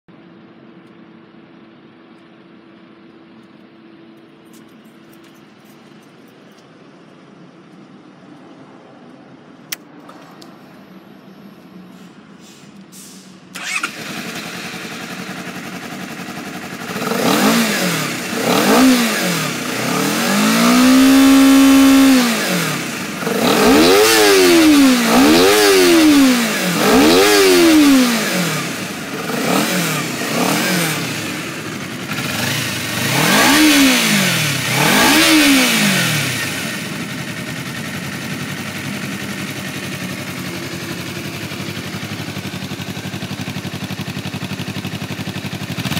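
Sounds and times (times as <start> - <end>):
motorcycle engine starting and idling: 12.8 - 45.9
motorcycle engine revving: 13.6 - 45.9.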